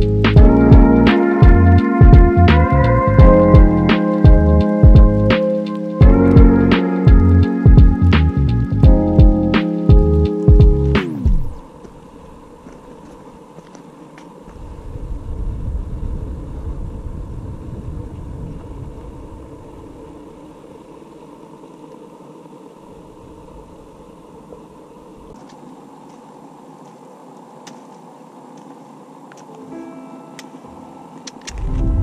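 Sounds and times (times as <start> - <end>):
steady outdoor hiss: 0.0 - 32.0
wind buffeting microphone: 14.4 - 20.8, 31.5 - 32.0.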